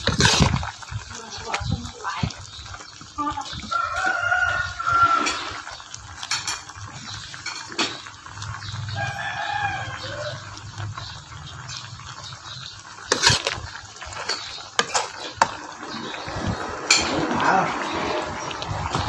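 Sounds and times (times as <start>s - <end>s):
sausages sizzling in oil: 0.0s - 19.0s
rooster crowing: 3.7s - 5.6s, 8.9s - 10.5s.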